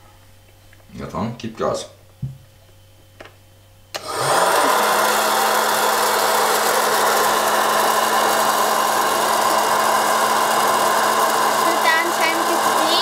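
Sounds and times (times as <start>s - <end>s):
blower motor hum and air rush: 3.9s - 13.0s.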